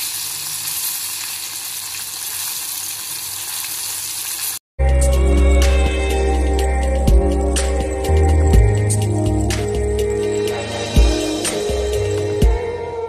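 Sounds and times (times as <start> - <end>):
deep-frying sizzle: 0.0 - 4.6
music: 4.8 - 13.0.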